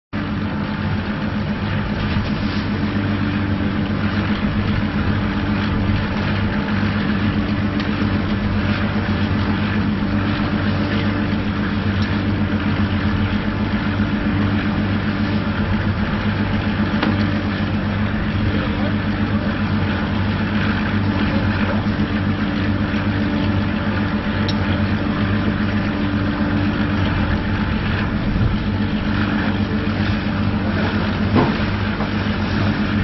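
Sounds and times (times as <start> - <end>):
engine running with fast throb: 0.2 - 33.0.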